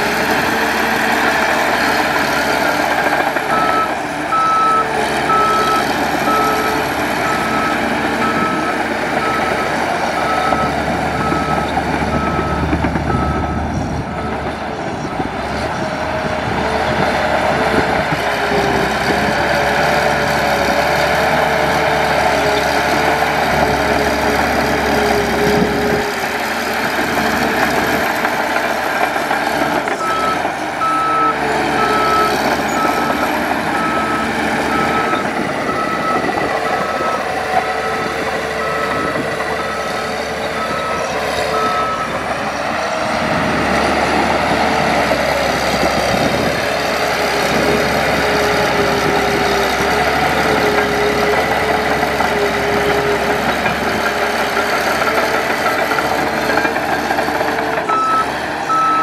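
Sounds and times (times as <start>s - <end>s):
heavy machinery diesel engine: 0.0s - 59.0s
reversing alarm beeping: 3.0s - 14.6s, 29.9s - 42.8s, 57.9s - 59.0s.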